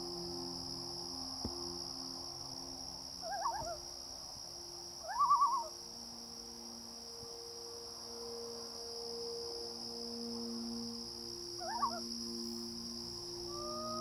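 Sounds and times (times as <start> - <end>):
low sustained drone: 0.0 - 14.0
insect trilling: 2.3 - 14.0
night bird quavering calls: 3.2 - 3.8, 5.0 - 5.8, 11.6 - 12.1, 13.4 - 14.0.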